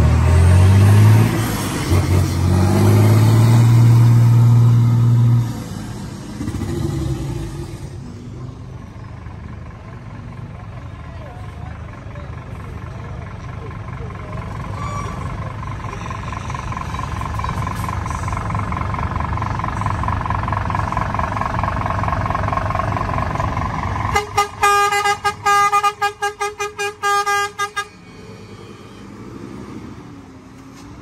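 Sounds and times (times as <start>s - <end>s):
truck engine running: 0.0s - 31.0s
truck air horn toots: 24.1s - 28.9s.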